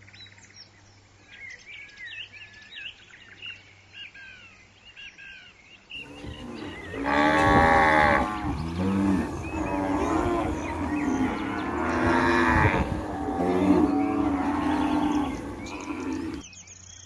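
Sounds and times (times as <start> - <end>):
cows mooing: 6.0 - 16.4.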